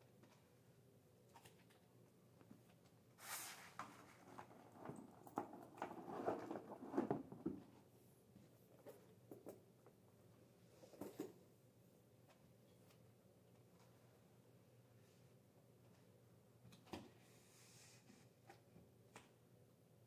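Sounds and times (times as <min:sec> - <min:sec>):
handbags rustling and clicking: 0:03.8 - 0:07.6.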